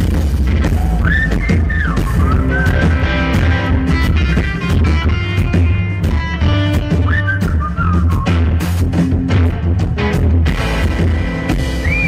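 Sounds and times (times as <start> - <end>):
live rock band playing: 0.0 - 12.0
whistled melody: 0.9 - 3.6, 6.7 - 8.6, 11.7 - 12.0.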